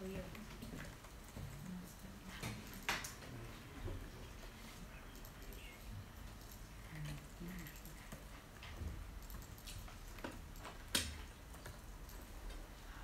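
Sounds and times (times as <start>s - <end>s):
laptop keys and trackpad clicks: 6.3s - 12.4s.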